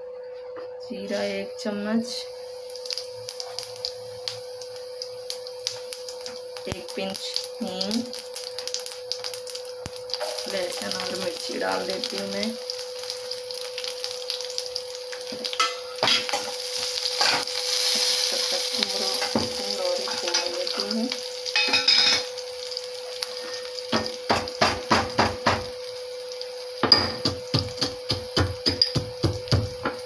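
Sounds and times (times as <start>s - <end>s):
spices sizzling in hot oil: 0.9s - 30.0s
metal spoon knocking against pan: 26.8s - 29.7s.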